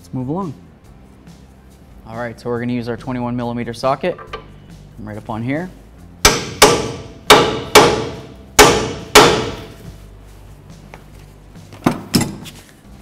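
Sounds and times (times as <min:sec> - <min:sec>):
hammer knocks: 0:06.3 - 0:09.7.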